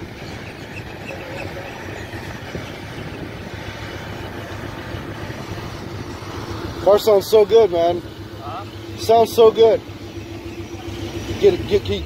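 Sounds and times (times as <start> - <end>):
car engine low rumble: 0.0 - 12.0.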